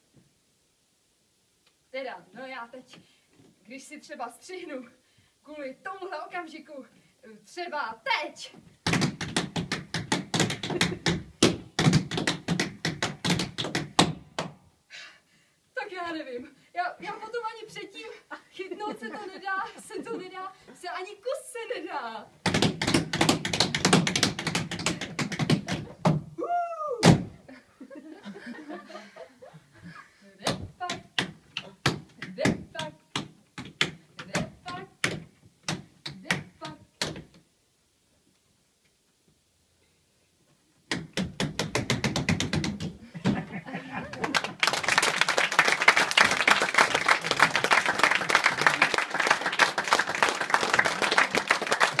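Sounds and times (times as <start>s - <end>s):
high-pitched vocal squeal: 26.4s - 27.2s
audience applause: 43.9s - 52.0s.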